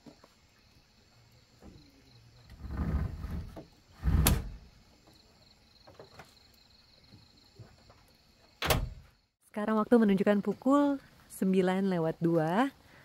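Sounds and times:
gear sliding rumble: 2.4s - 4.7s.

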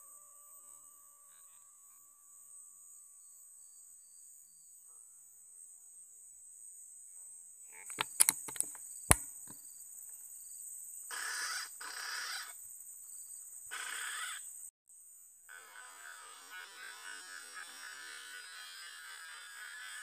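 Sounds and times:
insects droning: 0.0s - 20.0s
sharp clicks: 7.8s - 9.6s.

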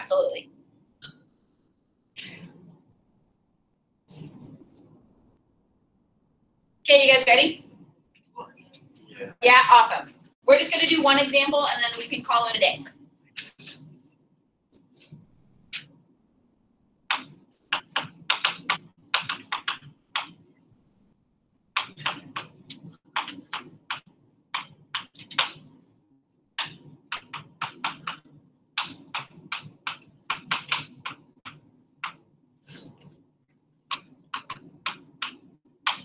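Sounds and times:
writing taps and scratches on board: 17.1s - 20.5s, 21.7s - 25.8s, 26.6s - 36.0s.

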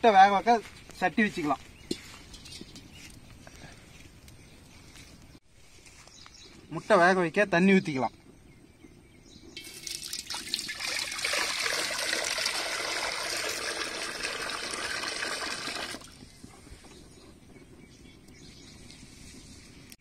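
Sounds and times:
water pouring into iron pot: 9.6s - 16.2s.

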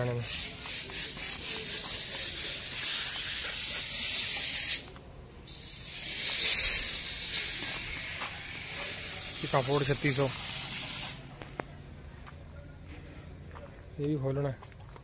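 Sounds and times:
high-pitched air hiss: 0.0s - 11.3s.

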